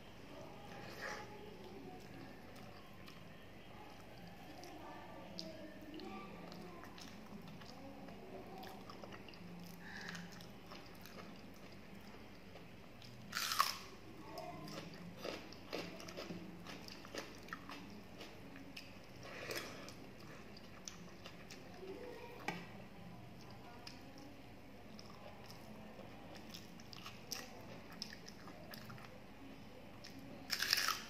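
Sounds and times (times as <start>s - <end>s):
soft chewing: 0.1s - 31.0s
crunchy bite: 13.3s - 13.9s, 30.5s - 31.0s.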